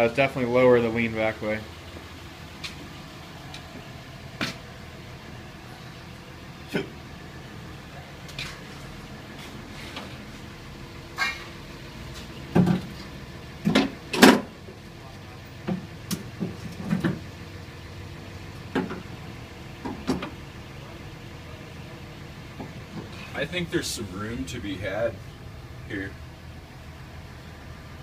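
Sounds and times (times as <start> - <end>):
car parts knocking and clunking: 1.9 - 4.7, 12.1 - 17.6, 18.4 - 20.5, 22.5 - 23.3.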